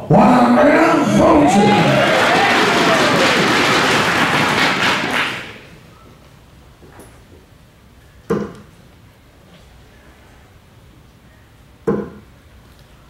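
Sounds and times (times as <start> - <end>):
audience applause: 0.4 - 5.8.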